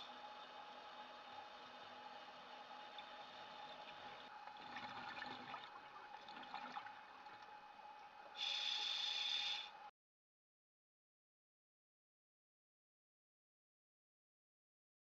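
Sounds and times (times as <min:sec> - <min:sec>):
faint hum: 0:00.0 - 0:09.9
underwater low hiss: 0:08.4 - 0:09.8.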